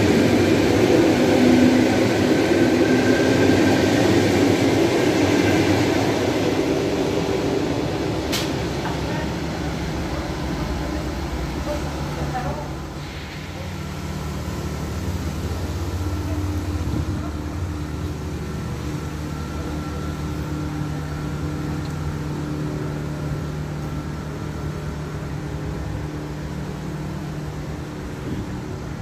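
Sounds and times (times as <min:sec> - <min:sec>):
low mechanical hum: 0:04.0 - 0:29.0
faint steady tones: 0:15.5 - 0:27.9.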